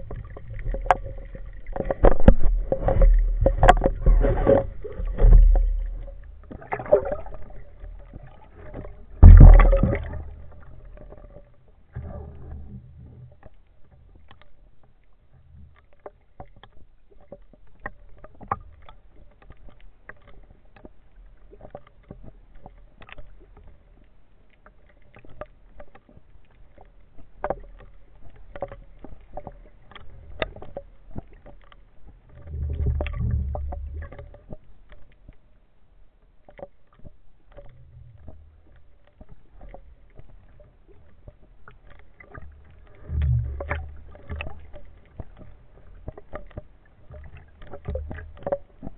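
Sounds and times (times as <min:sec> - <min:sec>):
deep surges of water: 0:00.0 - 0:11.4
crackle of small clicks: 0:00.0 - 0:48.9
sea water sloshing and lapping: 0:00.0 - 0:48.9.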